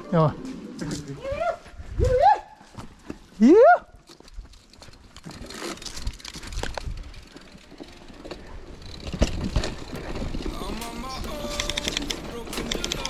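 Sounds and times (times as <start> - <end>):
bike tyres rolling on dirt: 0.9 - 12.6
bike rattling: 2.1 - 13.0
bike knocking over bumps: 9.0 - 11.0.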